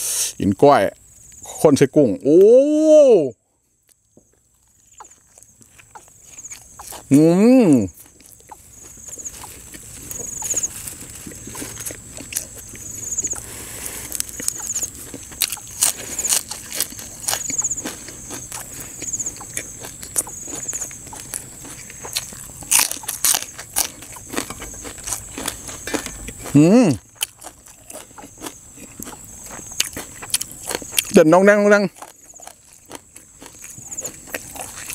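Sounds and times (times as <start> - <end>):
chewing with crunches: 3.7 - 34.9
wet mouth clicks: 11.4 - 16.6, 18.5 - 20.4.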